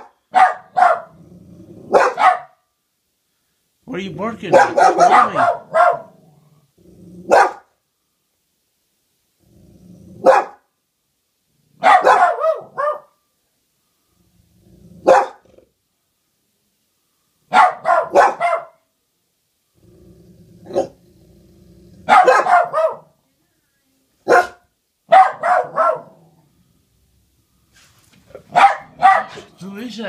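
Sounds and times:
dog barking: 0:00.0 - 0:01.2, 0:01.9 - 0:02.6, 0:04.4 - 0:06.2, 0:07.3 - 0:07.7, 0:10.2 - 0:10.7, 0:11.8 - 0:13.2, 0:15.0 - 0:15.5, 0:17.5 - 0:18.9, 0:20.7 - 0:21.0, 0:22.0 - 0:23.2, 0:24.2 - 0:26.2, 0:28.4 - 0:29.6.

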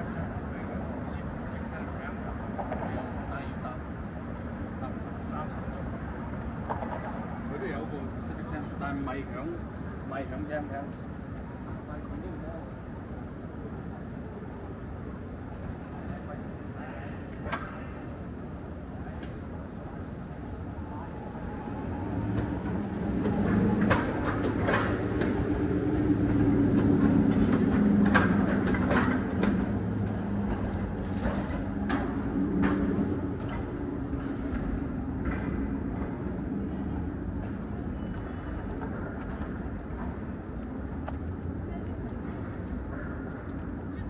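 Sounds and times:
streetcar rumbling past: 0:00.0 - 0:44.0
wheels clacking over rail joints: 0:22.2 - 0:36.2.

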